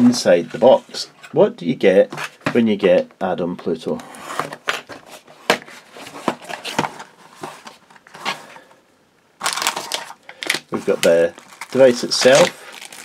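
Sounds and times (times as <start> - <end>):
plastic wrapping crinkling: 9.4 - 13.0.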